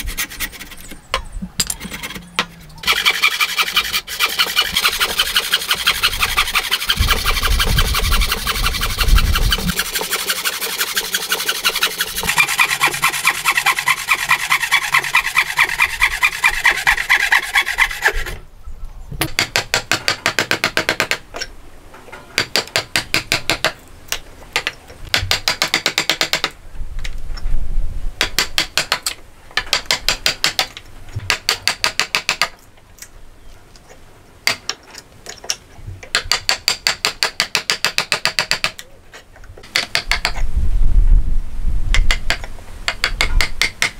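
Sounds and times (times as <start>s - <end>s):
hand saw cutting wood: 0.0s - 0.9s, 1.8s - 18.4s
chisel scraping wood: 0.0s - 1.0s, 1.6s - 18.4s.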